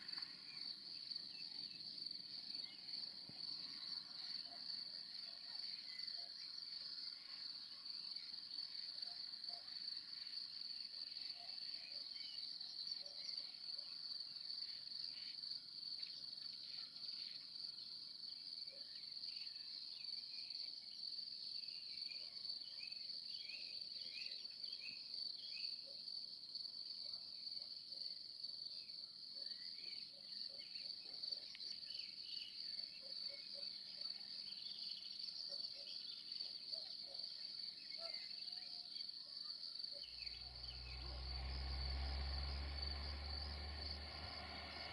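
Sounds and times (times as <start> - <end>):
crickets chirping: 0.0 - 44.9.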